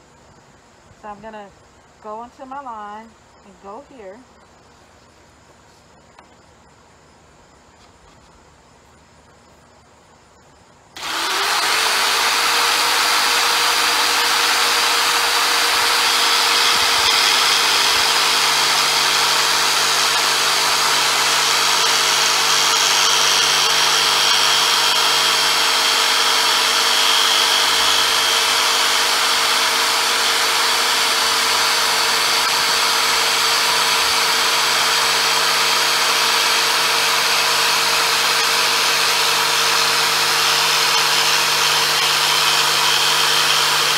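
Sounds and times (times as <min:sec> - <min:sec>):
jigsaw cutting wood: 0:11.0 - 0:43.9.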